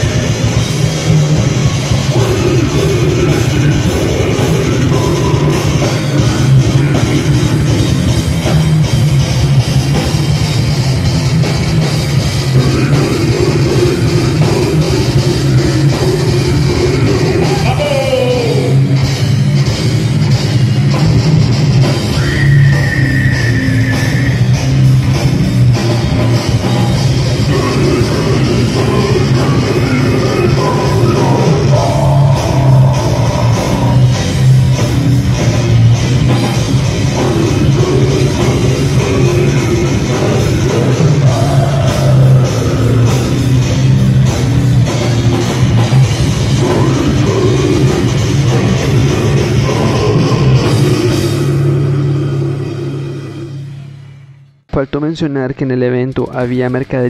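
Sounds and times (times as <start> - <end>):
heavy metal band playing: 0.0 - 54.4.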